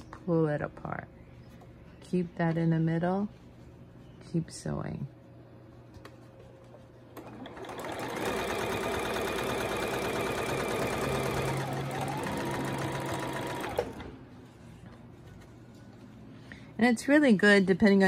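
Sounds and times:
sewing machine stitching: 0:07.2 - 0:14.1.

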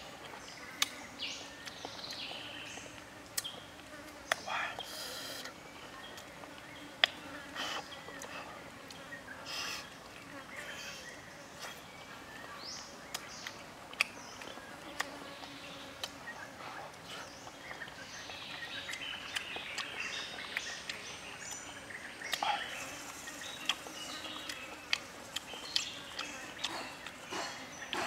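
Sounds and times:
birds chirping: 0:00.0 - 0:28.0.

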